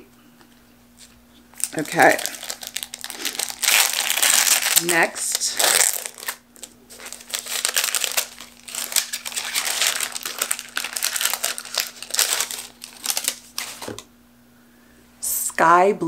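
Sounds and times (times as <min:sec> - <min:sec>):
paper wrapping crinkling: 0:01.0 - 0:14.1.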